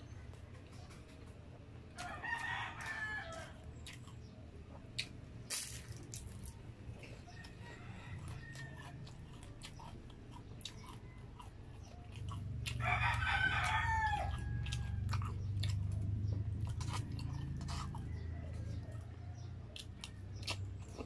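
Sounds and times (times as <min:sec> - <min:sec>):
rooster crowing: 0:02.0 - 0:03.6, 0:07.4 - 0:09.1, 0:12.6 - 0:15.3
chewing mouth clicks: 0:02.0 - 0:07.6, 0:08.2 - 0:21.0.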